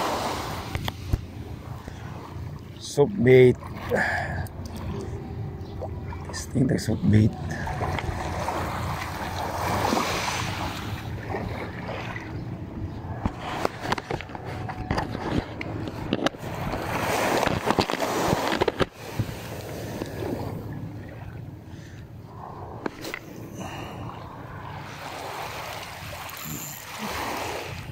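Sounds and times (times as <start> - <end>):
water around a boat: 0.0 - 27.9
wind: 0.0 - 27.9.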